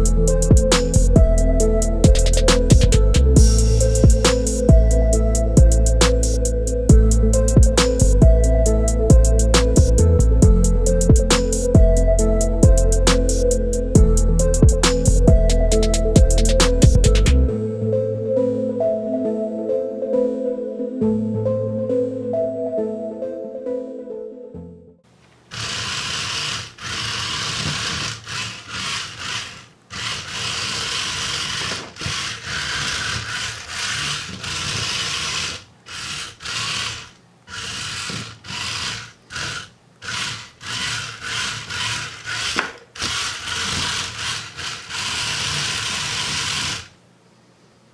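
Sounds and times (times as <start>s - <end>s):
small electric motors whirring: 25.5s - 47.0s.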